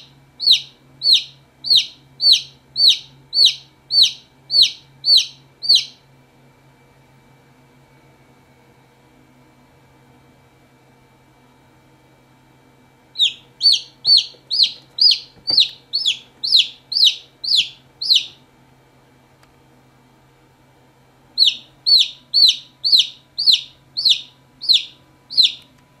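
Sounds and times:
chick peeping: 0.0 - 6.0, 13.2 - 18.4, 21.4 - 25.7.

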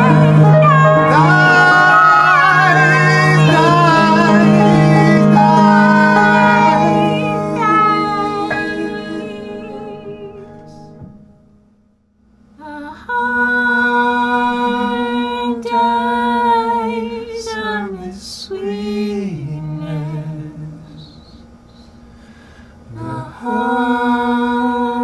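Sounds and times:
singing with long held notes: 0.0 - 11.4, 12.6 - 25.0.

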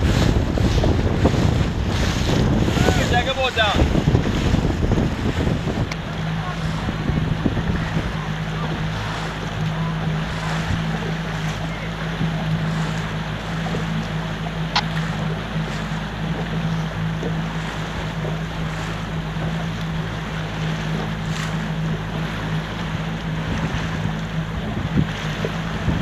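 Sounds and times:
boat engine humming: 0.0 - 26.0
water rushing: 0.0 - 26.0
wind buffeting microphone: 0.0 - 26.0.

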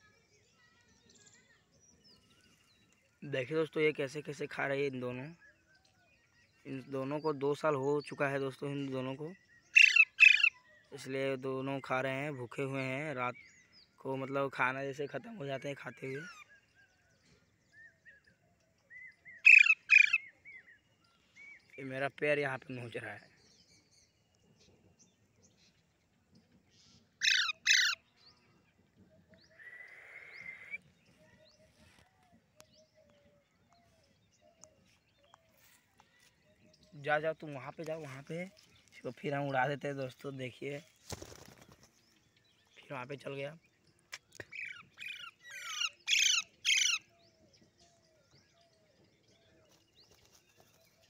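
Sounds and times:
parakeet squawks: 9.8 - 10.6, 19.4 - 20.2, 27.2 - 28.0, 44.5 - 47.0.

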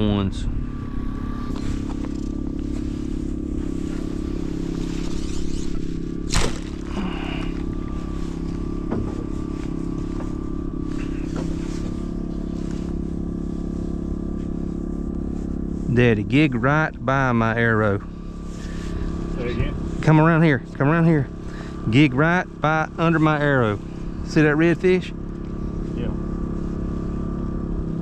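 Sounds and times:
trolling motor humming: 0.0 - 28.0
sharp snap: 6.2 - 6.8.

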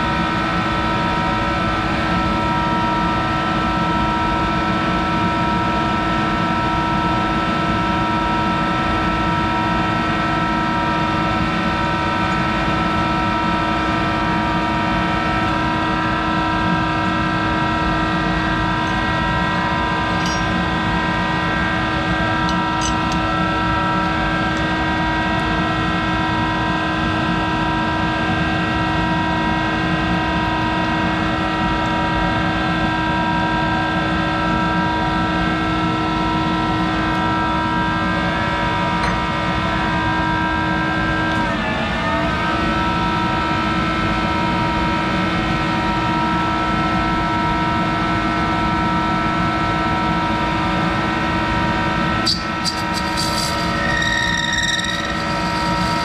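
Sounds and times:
metal lathe humming: 52.3 - 56.0.

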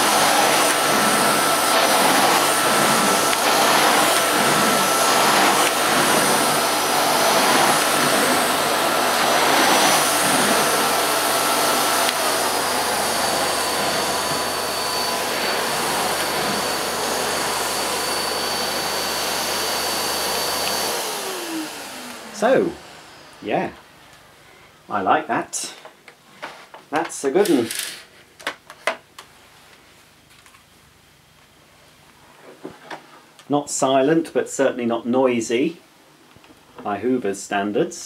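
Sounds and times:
vacuum nozzle pushed over carpet: 0.0 - 23.4
vacuum cleaner running: 0.0 - 24.6.

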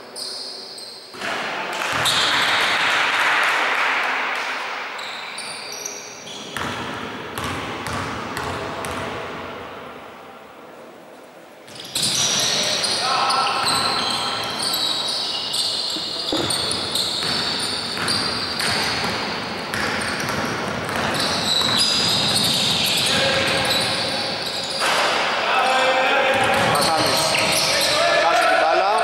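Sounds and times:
sneakers squeaking: 0.0 - 1.3, 1.9 - 2.6, 5.0 - 9.0, 11.7 - 25.0, 26.5 - 28.0
basketball bouncing on court: 6.5 - 9.2, 15.7 - 22.7.

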